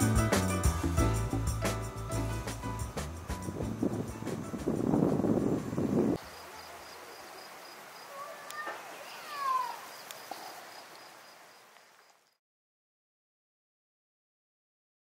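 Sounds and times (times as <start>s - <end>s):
music: 0.0s - 6.2s
pulsing insect chirp: 0.8s - 12.4s
faint clicks: 8.4s - 8.8s, 10.0s - 10.5s.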